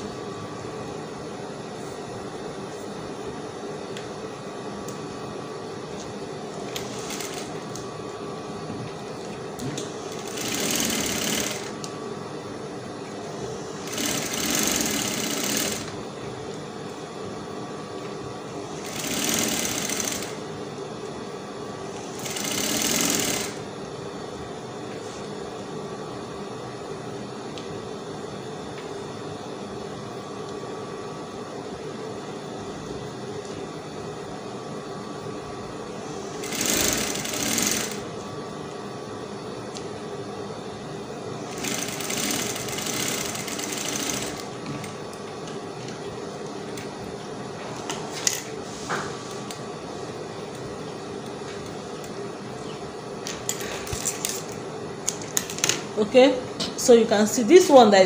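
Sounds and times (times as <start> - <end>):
steady machine hum: 0.0 - 58.0
sewing machine motor hum: 6.5 - 7.9, 9.6 - 11.9, 13.2 - 16.1, 18.5 - 20.5, 21.8 - 23.7, 36.1 - 38.2, 41.4 - 45.0
sewing machine stitching: 6.7 - 7.6, 10.1 - 11.8, 13.8 - 16.0, 18.8 - 20.4, 22.1 - 23.6, 36.4 - 38.0, 41.5 - 44.5.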